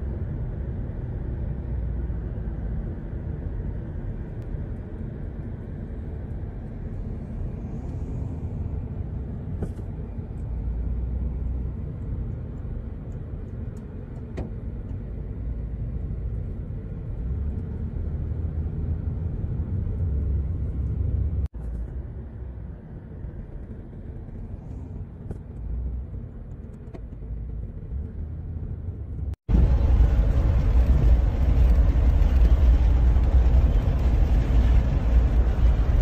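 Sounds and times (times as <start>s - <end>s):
car rumbling: 0.0s - 36.0s
wind buffeting microphone: 29.2s - 36.0s.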